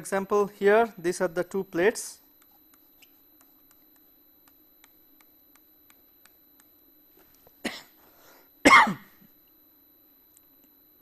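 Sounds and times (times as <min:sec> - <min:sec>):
person coughing: 0:07.6 - 0:08.0, 0:08.6 - 0:09.3.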